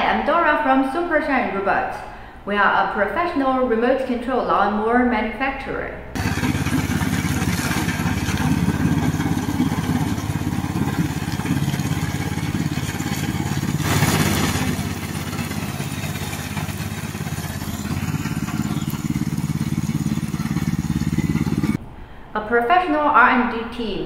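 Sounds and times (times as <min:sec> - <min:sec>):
mower engine running: 0:06.2 - 0:21.8.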